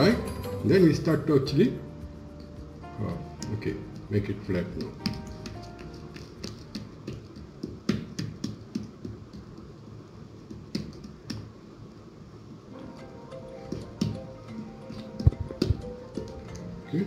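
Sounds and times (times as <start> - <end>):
hands patting dough on board: 2.0 - 11.6, 13.6 - 16.8.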